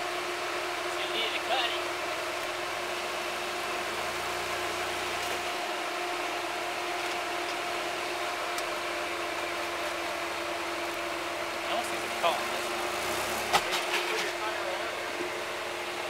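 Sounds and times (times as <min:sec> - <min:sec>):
off-road vehicle engine droning: 0:00.0 - 0:16.0.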